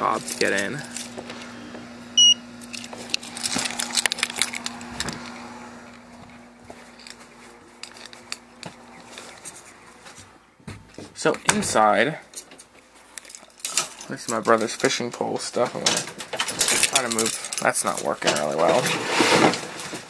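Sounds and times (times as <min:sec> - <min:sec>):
short high card reader beep: 0:02.2 - 0:02.4
keys jangling: 0:02.6 - 0:05.2, 0:06.8 - 0:08.4, 0:12.3 - 0:14.9, 0:15.8 - 0:18.5
clicks and rustles: 0:02.6 - 0:11.6, 0:12.2 - 0:20.0.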